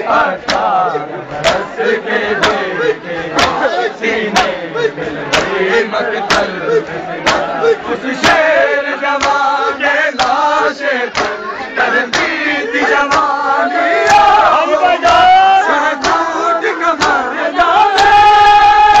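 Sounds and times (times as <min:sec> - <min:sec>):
men chanting in unison: 0:00.0 - 0:19.0
chest-beating slaps: 0:00.4 - 0:00.7, 0:02.4 - 0:02.6, 0:03.3 - 0:03.6, 0:05.3 - 0:07.6, 0:09.2 - 0:09.5, 0:10.2 - 0:10.4, 0:11.1 - 0:11.4, 0:12.1 - 0:12.4, 0:13.1 - 0:13.3, 0:16.0 - 0:16.3.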